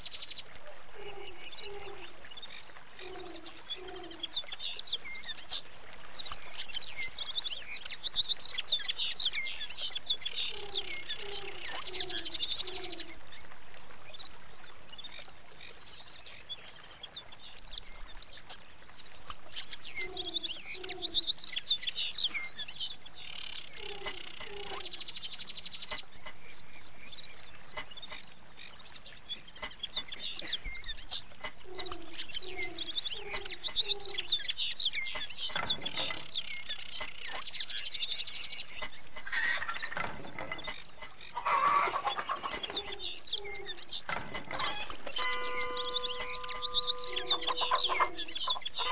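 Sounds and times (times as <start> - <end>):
small birds chirping and trilling: 0.0 - 48.9
low hooting notes: 44.9 - 48.9.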